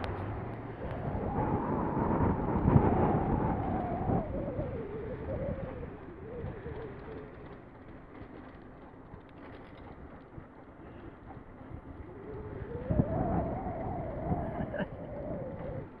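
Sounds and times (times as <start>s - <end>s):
wind rumbling on microphone: 0.0s - 16.0s
faint wavering tone: 0.8s - 7.8s.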